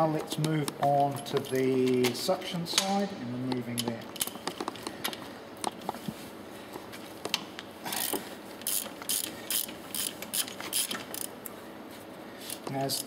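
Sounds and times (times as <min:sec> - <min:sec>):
ratchet wrench clicking: 0:08.0 - 0:11.3.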